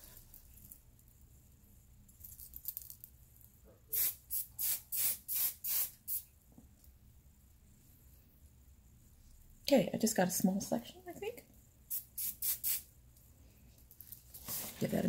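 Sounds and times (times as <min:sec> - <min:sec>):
hairspray bottle spraying: 0:03.9 - 0:06.3, 0:11.9 - 0:12.9.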